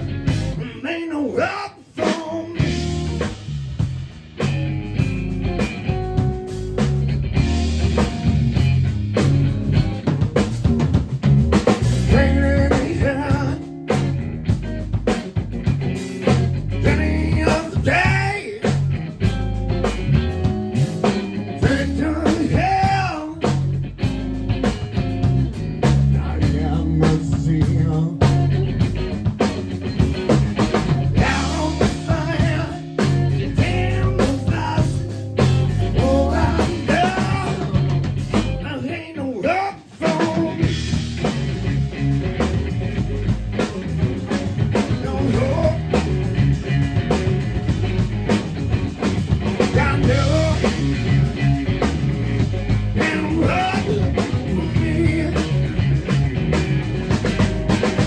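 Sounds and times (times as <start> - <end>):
drum kit steady beat: 0.0 - 0.8, 2.0 - 38.9, 39.8 - 58.0
electric bass: 0.0 - 1.2, 2.0 - 58.0
electric guitar: 0.0 - 58.0
man singing into microphone: 0.6 - 2.7, 12.1 - 13.6, 16.8 - 18.7, 21.6 - 23.5, 26.2 - 28.3, 31.2 - 32.8, 33.4 - 35.1, 35.9 - 37.8, 38.6 - 40.7, 44.9 - 45.9, 49.7 - 50.8, 53.0 - 55.6.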